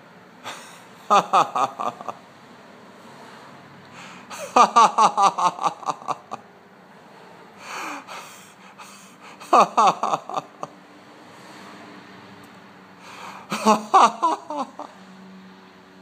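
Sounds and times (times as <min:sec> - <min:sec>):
gasping breath: 0:00.4 - 0:00.9, 0:03.9 - 0:04.6, 0:07.6 - 0:09.6, 0:13.0 - 0:13.6
man laughing: 0:00.5 - 0:02.2, 0:04.0 - 0:06.4, 0:07.8 - 0:10.8, 0:13.1 - 0:15.0.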